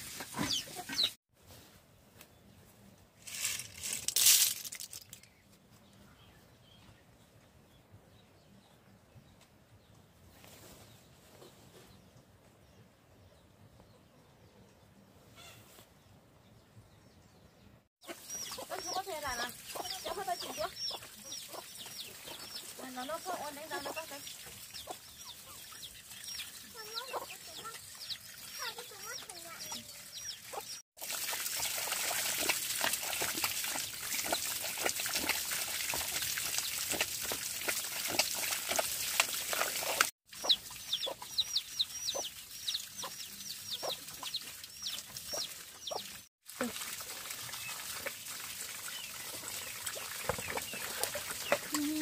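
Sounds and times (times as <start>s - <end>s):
chicks peeping: 0.4s - 1.1s, 18.0s - 22.7s, 24.8s - 28.2s, 40.4s - 46.0s
hen clucking: 0.4s - 1.2s, 18.0s - 26.0s, 40.3s - 42.3s, 42.9s - 46.1s.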